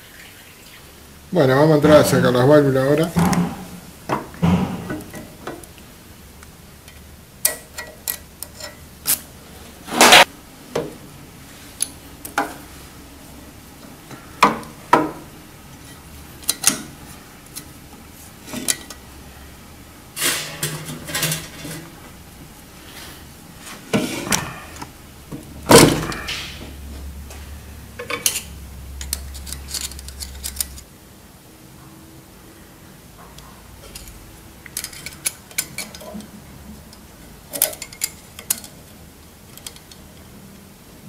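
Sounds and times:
loud knocks: 3.2s - 5.2s
metallic clicks and clanks: 28.0s - 30.8s, 33.8s - 36.3s.

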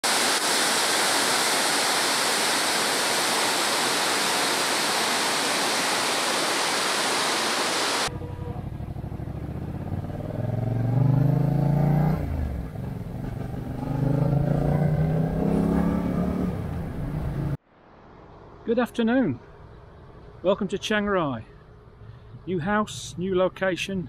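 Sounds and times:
waterfall rushing: 0.0s - 8.1s
motorcycle engine accelerating: 8.1s - 17.6s.

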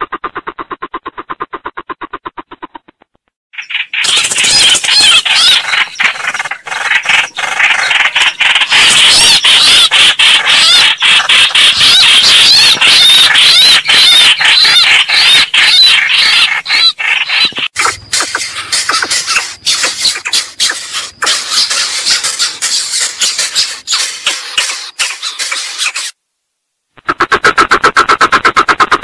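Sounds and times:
recorded birds squealing and chattering: 3.6s - 26.2s.

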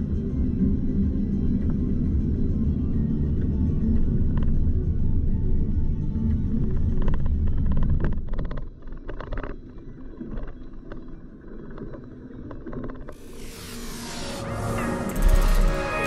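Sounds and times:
whoosh: 13.2s - 16.0s.

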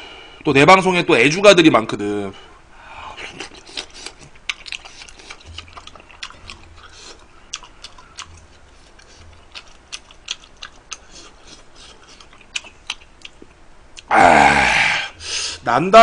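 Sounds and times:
wet chewing mouth clicks: 3.4s - 14.1s.

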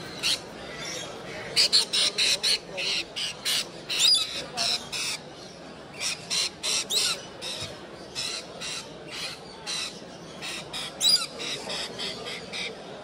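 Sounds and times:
parrots squawking: 5.9s - 12.8s.

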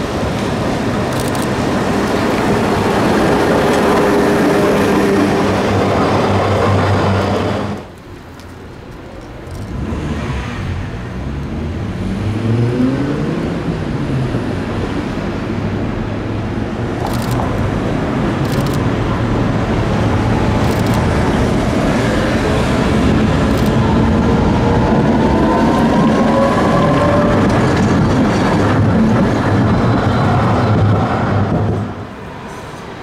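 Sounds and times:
tram approaching: 0.0s - 33.0s
cars driving past: 9.4s - 33.0s.

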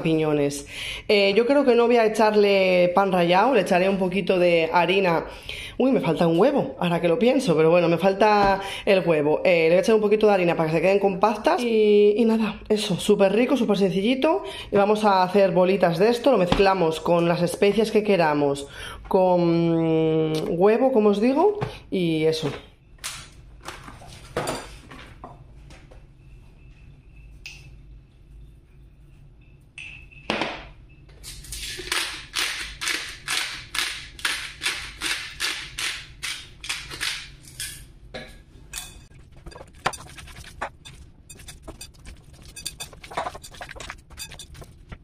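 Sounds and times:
spice grinder grinding: 39.1s - 45.0s
hands kneading meat squelching: 39.2s - 45.0s.

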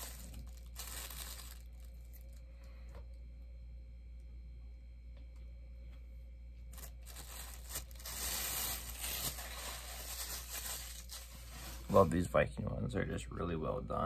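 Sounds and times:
plastic bag rustling: 0.0s - 2.4s, 6.7s - 12.2s.

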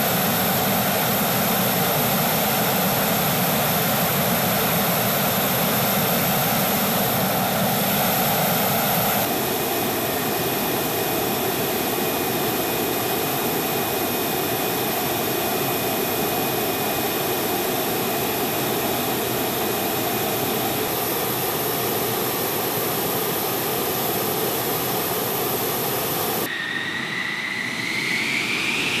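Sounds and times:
jet engine idling with whine: 0.0s - 29.0s.

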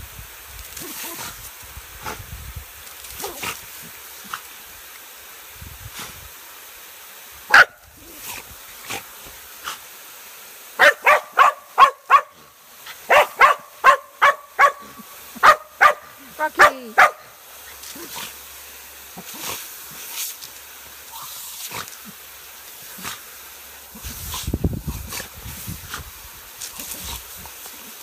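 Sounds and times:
sprinkler spray hissing: 0.0s - 28.0s
dog barking: 7.5s - 7.8s, 10.8s - 12.4s, 13.1s - 17.3s.

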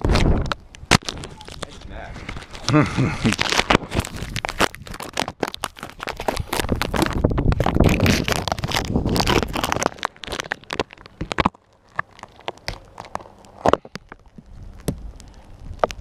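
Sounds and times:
rubbing and scraping on camera: 0.0s - 14.9s.

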